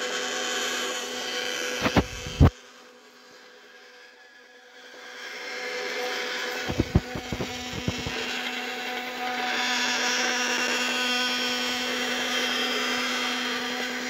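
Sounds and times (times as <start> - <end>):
electric gear motor humming: 0.0 - 2.5, 4.9 - 14.0
plastic strip hissing: 1.8 - 2.5, 6.7 - 8.2.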